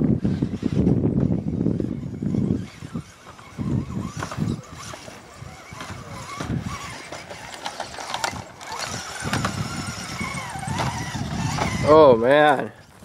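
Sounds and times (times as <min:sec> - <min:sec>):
toy truck motor whining: 0:00.0 - 0:13.0.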